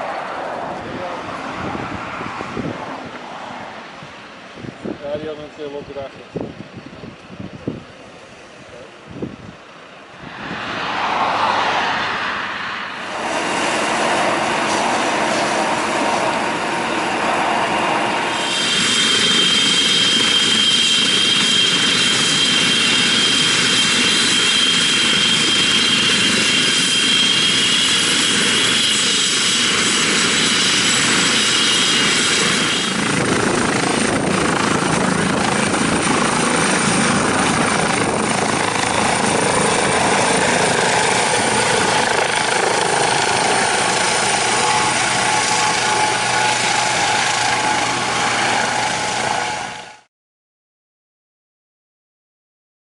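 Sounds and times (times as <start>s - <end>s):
helicopter turbine whine: 7.9s - 50.1s
helicopter rotor noise: 11.3s - 50.1s.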